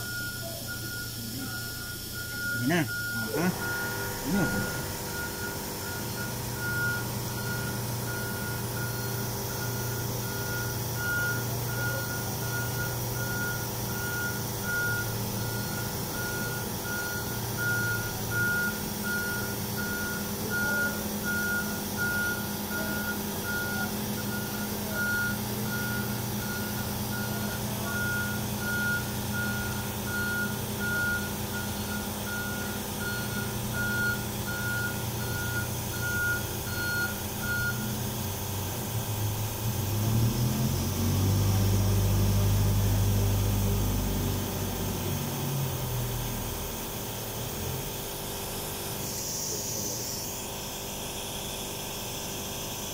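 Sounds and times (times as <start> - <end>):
reversing alarm beeping: 0.0 - 38.0
engine running: 0.0 - 52.9.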